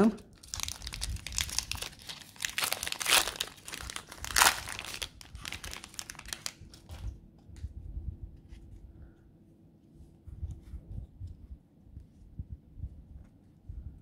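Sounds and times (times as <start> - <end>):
wrapper crinkling: 0.0 - 7.1.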